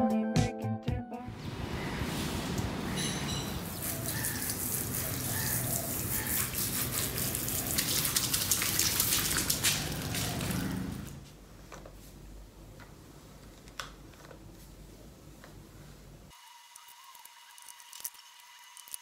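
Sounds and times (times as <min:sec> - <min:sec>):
hose water spraying on tiles: 0:02.1 - 0:11.1.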